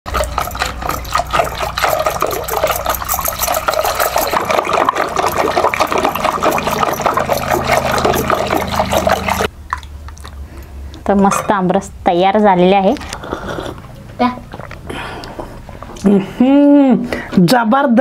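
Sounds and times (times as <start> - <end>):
wet sloshing of churned pulp: 0.1 - 11.2.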